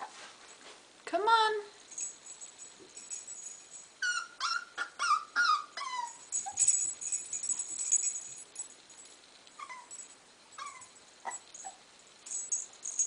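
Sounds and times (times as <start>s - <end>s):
puppy whimpering: 4.0s - 6.7s, 9.6s - 9.9s, 10.6s - 11.8s.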